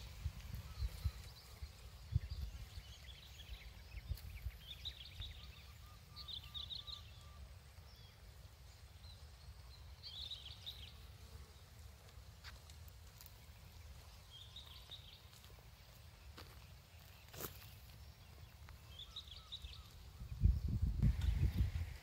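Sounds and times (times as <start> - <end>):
wind buffeting microphone: 0.0 - 5.5, 19.4 - 22.0
small birds chirping: 0.0 - 22.0.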